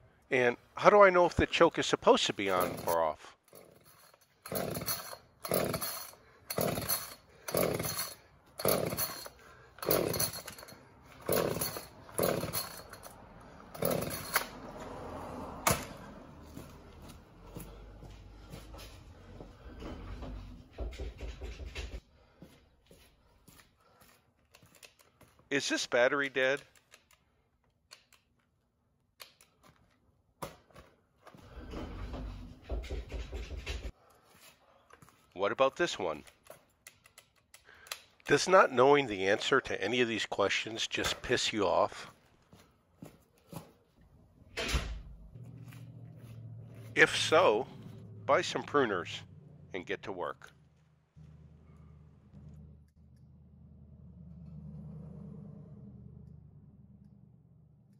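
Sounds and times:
chainsaw starter cord yanked: 0:02.5 - 0:14.6.

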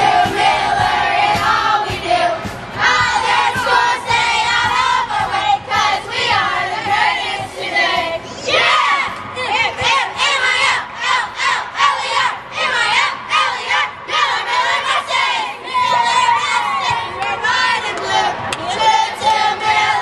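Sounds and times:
children chanting a cheer: 0:00.0 - 0:20.0
children shouting: 0:08.4 - 0:20.0.

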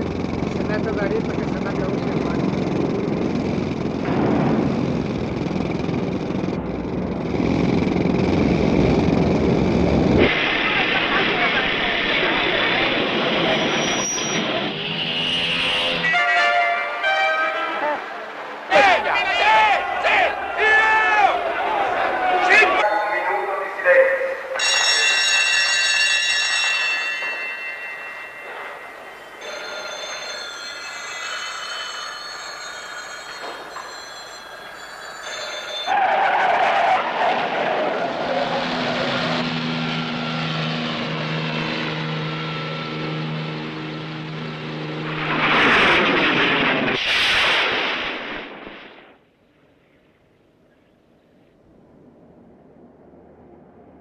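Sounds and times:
construction machinery engine rumble: 0:00.0 - 0:14.9
telephone bells ringing: 0:24.6 - 0:36.0.

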